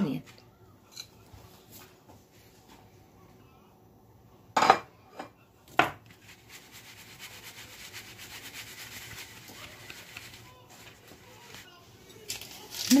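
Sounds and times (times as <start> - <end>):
spices rasping through sieve mesh: 6.1 - 13.0.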